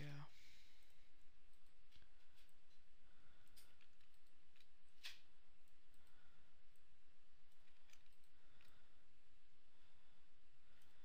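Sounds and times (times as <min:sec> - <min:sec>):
mouse and keyboard clicks: 0:03.5 - 0:05.3, 0:07.5 - 0:08.8.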